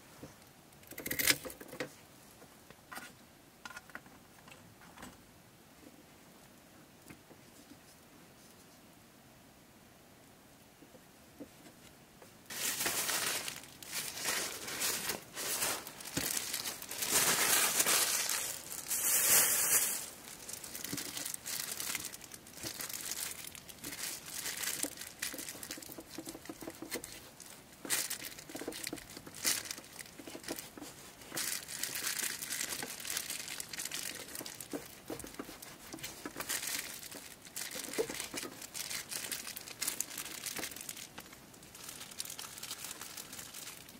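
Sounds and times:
crinkling and rustling: 0.0s - 5.2s, 10.9s - 43.9s.

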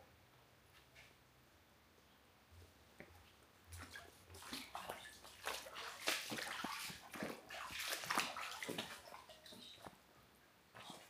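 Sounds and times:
water splashing and sloshing: 3.6s - 10.1s, 10.7s - 11.0s.

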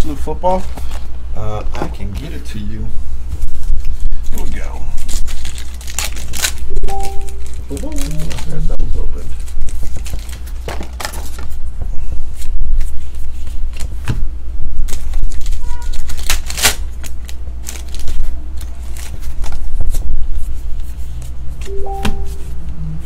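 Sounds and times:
steady low hum: 0.0s - 15.6s, 16.8s - 23.0s.

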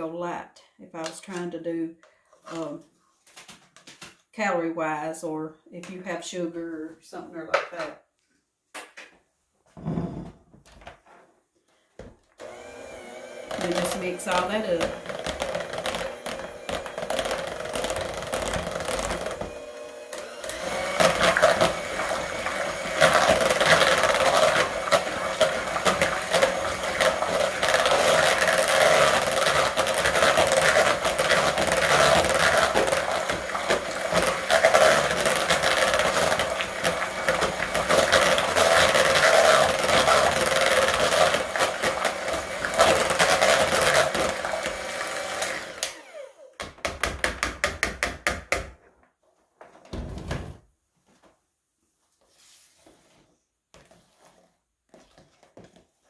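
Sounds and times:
electric hand mixer running: 12.4s - 46.6s.

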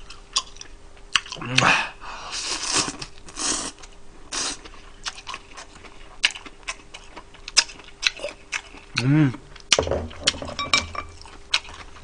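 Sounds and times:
person slurping noodles: 1.6s - 4.6s
wet chewing with smacking: 4.6s - 9.0s.

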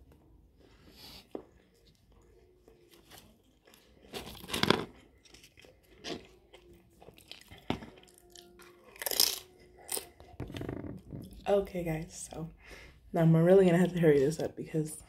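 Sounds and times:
crunchy chewing: 1.2s - 11.4s.

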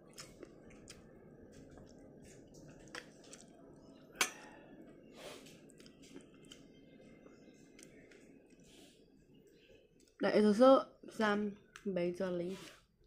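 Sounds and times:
person chewing and slurping: 0.0s - 3.6s.

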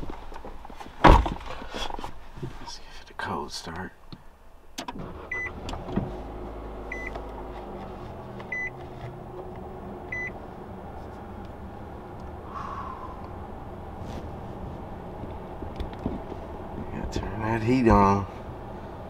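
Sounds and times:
car engine starting and idling: 4.5s - 19.0s.

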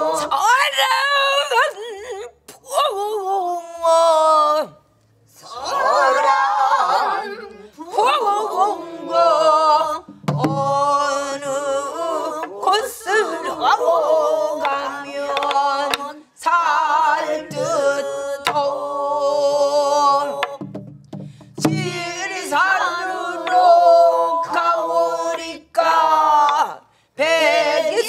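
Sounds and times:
woman singing with vibrato: 0.0s - 4.8s, 7.0s - 20.6s, 21.6s - 28.0s
other voices singing: 0.0s - 20.8s, 21.6s - 28.0s
barrel drum strokes: 20.4s - 22.2s.

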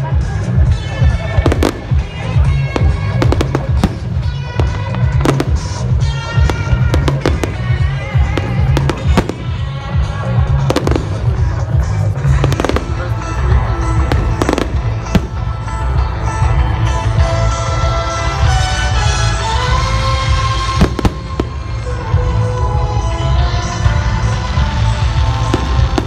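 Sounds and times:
loud music with low rumble: 0.0s - 26.0s
fireworks bangs: 0.9s - 15.9s, 19.4s - 22.5s, 24.5s - 26.0s.

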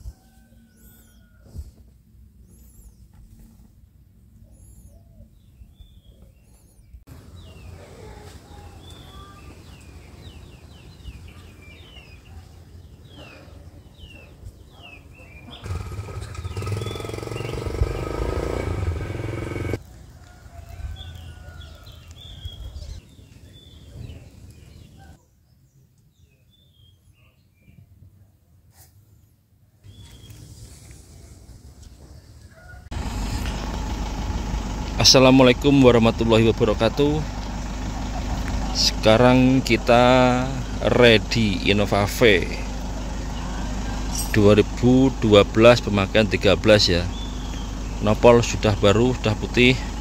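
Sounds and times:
small birds chirping: 2.4s - 28.0s, 29.0s - 50.0s
steady low rumble: 32.9s - 50.0s.

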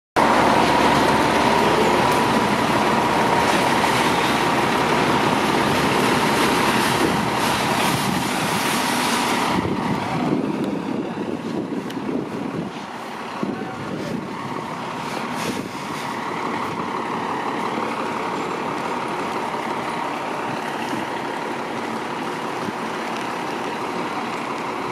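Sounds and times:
train whine: 0.2s - 20.5s
elevated train rumbling past: 0.2s - 21.5s.

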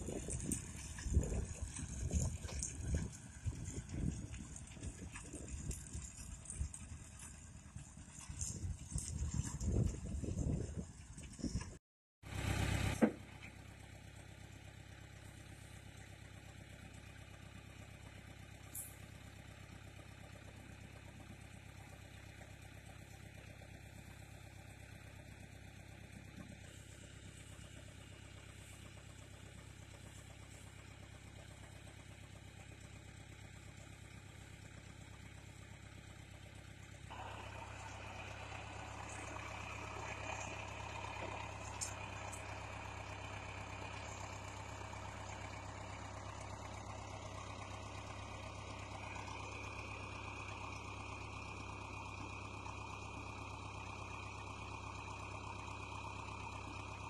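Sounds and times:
tractor engine idling: 0.0s - 57.0s.

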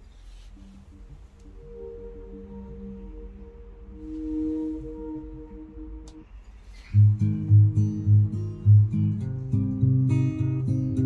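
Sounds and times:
recorded music with low notes: 0.0s - 11.0s.

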